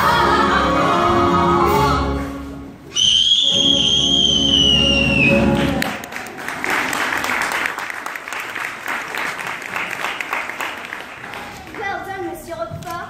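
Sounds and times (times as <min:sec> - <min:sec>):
audience applauding: 0:04.5 - 0:11.9.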